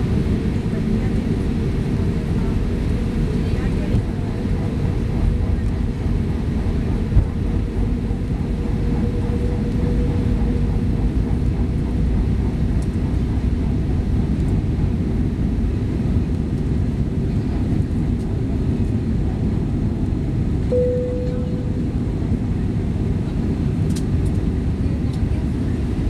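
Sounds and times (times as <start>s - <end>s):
jet engines humming: 0.0s - 26.0s
faint steady whine: 20.7s - 22.1s.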